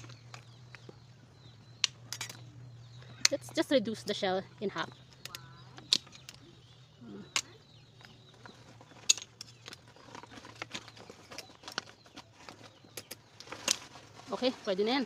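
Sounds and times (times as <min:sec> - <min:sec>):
metal tongs clinking on pot and shells: 0:02.1 - 0:02.4.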